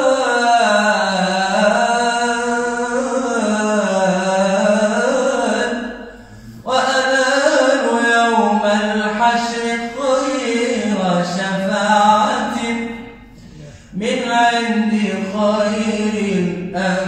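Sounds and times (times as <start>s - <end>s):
man singing unaccompanied: 0.0s - 13.2s, 13.9s - 17.0s.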